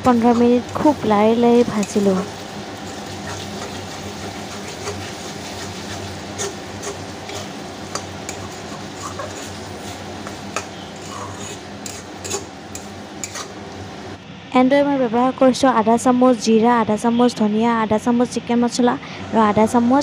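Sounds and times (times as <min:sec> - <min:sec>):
metal spatula scraping pan: 0:00.0 - 0:13.6
meat sizzling in oil: 0:00.0 - 0:14.2.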